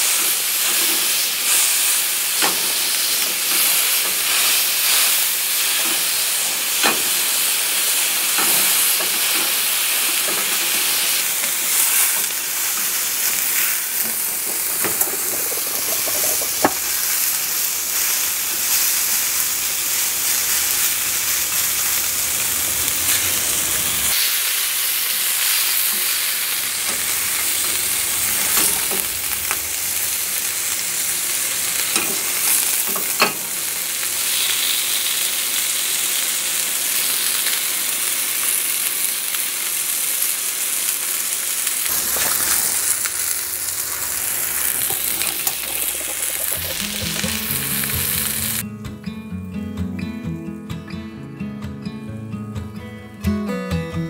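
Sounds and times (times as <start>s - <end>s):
meat sizzling in a skillet: 0.0s - 48.6s
spatula scraping and tapping pan: 13.6s - 17.2s, 41.9s - 48.6s.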